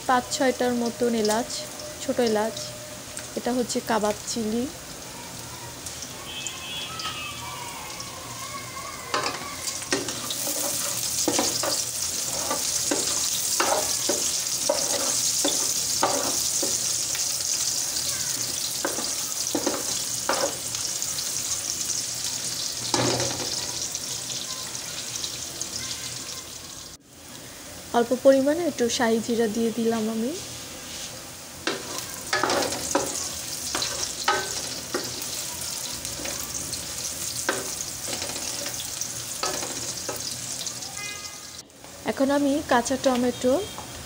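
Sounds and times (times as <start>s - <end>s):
onions sizzling in oil: 0.0s - 44.0s
wooden spatula scraping pot: 9.2s - 16.9s.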